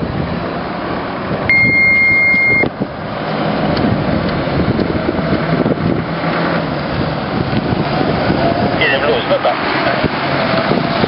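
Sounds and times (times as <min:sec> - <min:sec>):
fire engine diesel engine: 0:00.0 - 0:11.0
wind on microphone: 0:00.0 - 0:11.0
steady high-pitched tone: 0:01.5 - 0:02.7.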